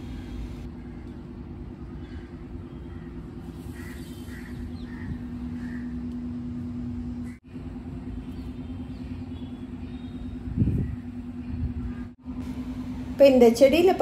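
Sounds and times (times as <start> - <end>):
low mechanical hum: 0.0 - 14.0
faint bird calls: 1.9 - 6.5.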